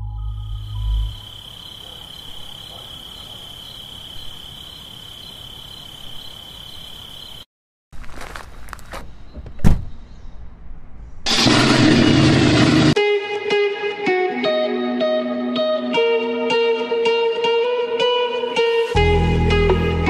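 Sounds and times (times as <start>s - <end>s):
high-pitched insect buzz: 0.0s - 7.5s.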